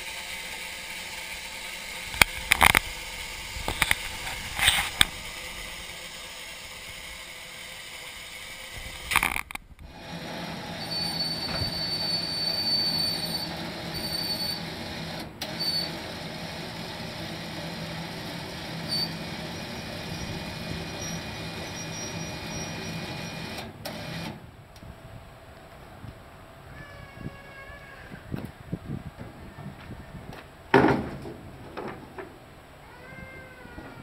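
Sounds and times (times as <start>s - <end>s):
vehicle rumbling: 0.0s - 34.0s
high squeal: 10.8s - 14.7s, 18.8s - 23.4s.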